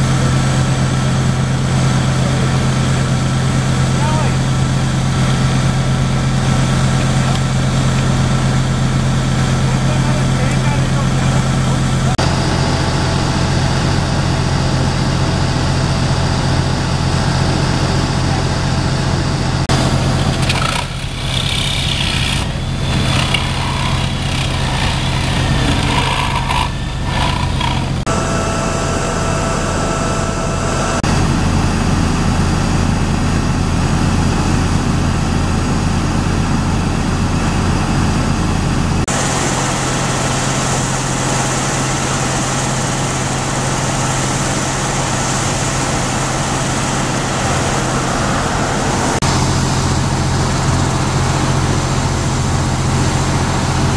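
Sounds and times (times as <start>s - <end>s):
engine idling: 0.0s - 53.9s.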